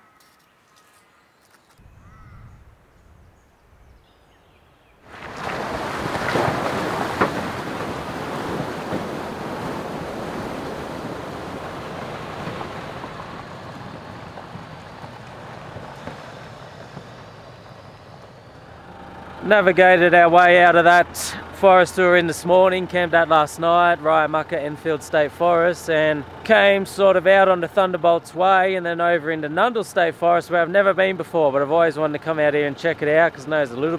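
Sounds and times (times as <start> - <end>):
water rushing and splashing: 5.0 - 17.8.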